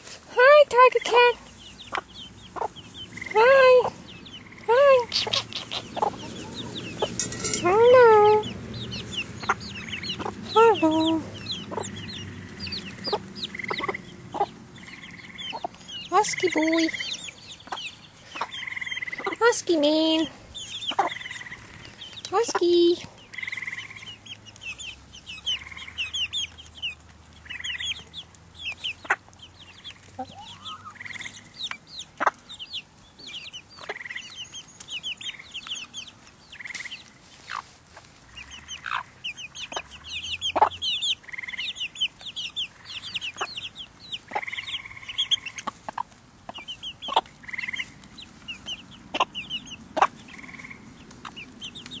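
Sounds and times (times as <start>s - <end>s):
chicks peeping: 0.0s - 52.0s
hens clucking: 0.0s - 52.0s.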